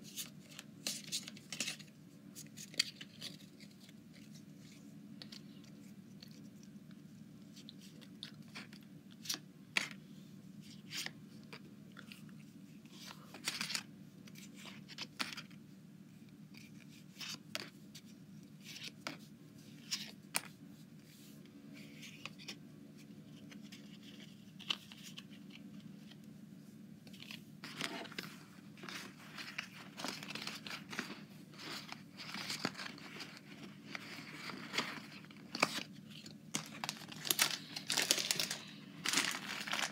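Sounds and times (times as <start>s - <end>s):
card crinkling: 0.0s - 6.7s, 12.9s - 15.6s, 27.0s - 39.9s
low steady hum: 0.0s - 39.9s.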